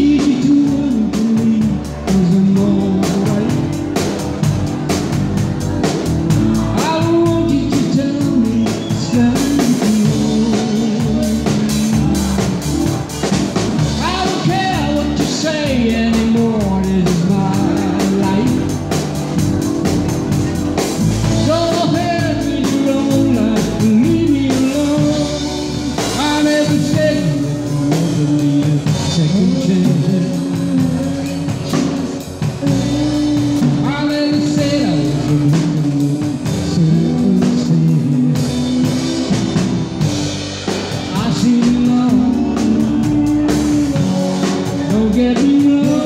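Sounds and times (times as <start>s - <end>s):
drum kit: 0.0s - 46.0s
guitar: 0.0s - 46.0s
person singing: 0.0s - 46.0s.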